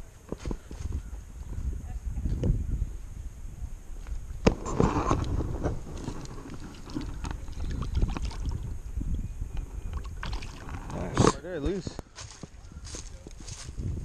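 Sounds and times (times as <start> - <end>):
wind on microphone: 0.0 - 14.0
water splashing: 4.6 - 11.4.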